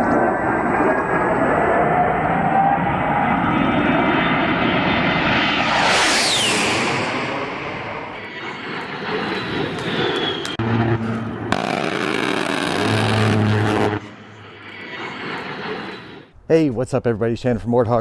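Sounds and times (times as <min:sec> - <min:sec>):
rushing whoosh: 0:04.4 - 0:16.3
falling whistle: 0:05.6 - 0:07.2, 0:09.9 - 0:10.6
deep steady tone: 0:10.6 - 0:15.5.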